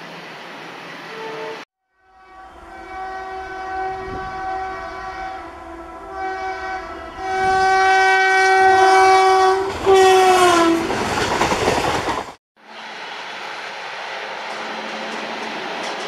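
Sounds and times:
locomotive air horn blasts: 0:01.1 - 0:10.9
train coaches rushing and clattering: 0:09.6 - 0:16.0.

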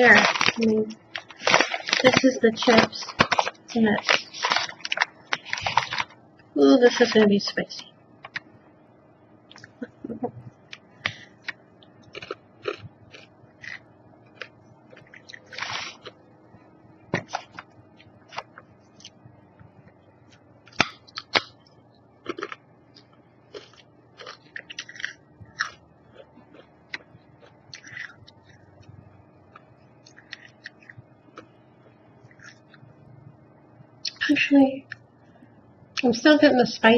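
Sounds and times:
person chewing crunchy chips: 0:00.0 - 0:06.2, 0:11.0 - 0:16.3, 0:20.7 - 0:21.6, 0:22.2 - 0:28.9, 0:29.5 - 0:31.5, 0:32.3 - 0:32.9.

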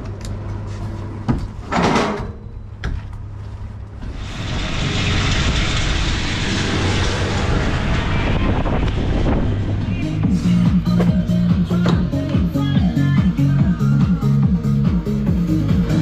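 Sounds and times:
loud even rushing noise: 0:04.0 - 0:11.8
machine engine running: 0:04.0 - 0:12.5.

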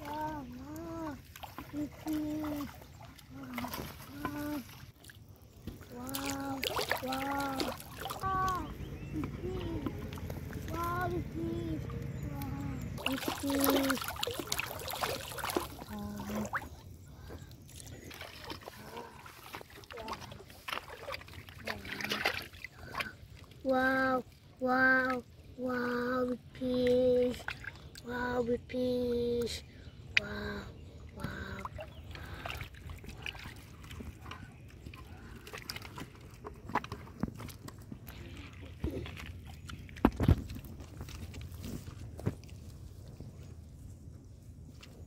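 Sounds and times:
fish thrashing and splashing: 0:00.0 - 0:11.4, 0:12.0 - 0:23.6, 0:31.2 - 0:43.2
water sloshing: 0:00.0 - 0:45.0
steady low rumble: 0:08.1 - 0:13.3.

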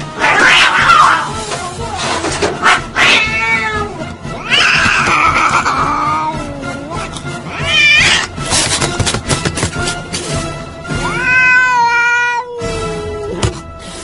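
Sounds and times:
cat yowling: 0:00.2 - 0:01.3, 0:02.6 - 0:08.3, 0:11.0 - 0:13.4.

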